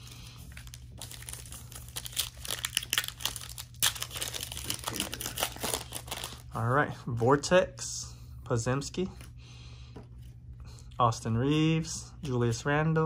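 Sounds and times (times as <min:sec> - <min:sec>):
foil pack crinkling: 0:00.2 - 0:06.5.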